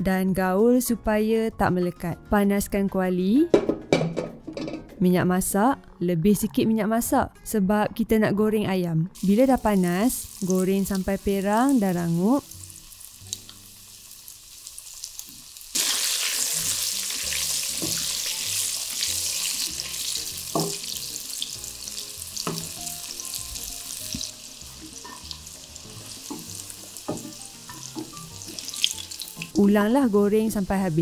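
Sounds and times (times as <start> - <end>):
wooden spatula knocking pan: 3.5 - 4.9, 20.5 - 21.0, 22.4 - 22.8, 26.0 - 28.8
chicken deep-frying in oil: 9.2 - 31.0.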